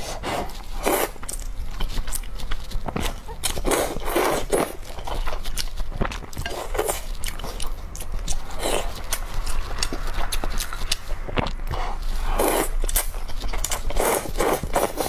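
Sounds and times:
chewing: 0:00.1 - 0:15.0
noodles slurped: 0:08.5 - 0:15.0.

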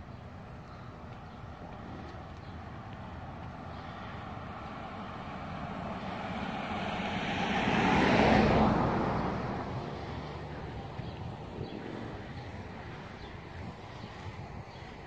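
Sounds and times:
car driving past: 0:04.2 - 0:12.8.

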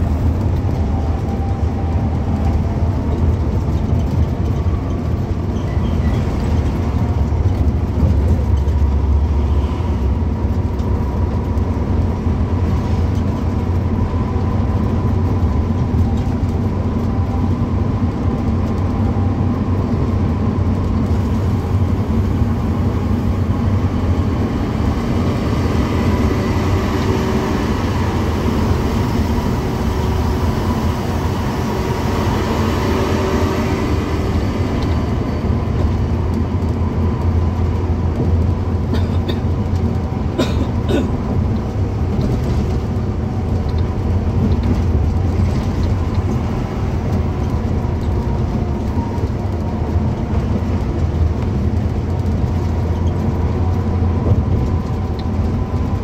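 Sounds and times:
bus engine and road rumble: 0:00.0 - 0:56.0.

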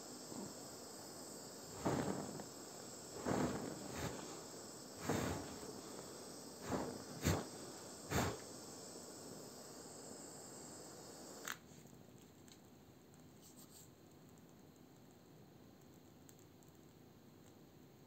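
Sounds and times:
plastic burning and sputtering: 0:01.6 - 0:08.5.

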